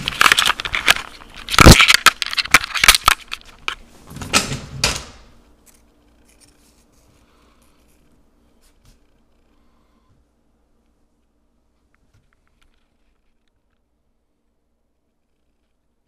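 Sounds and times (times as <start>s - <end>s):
camera handling rustling and clicking: 0.0s - 3.8s.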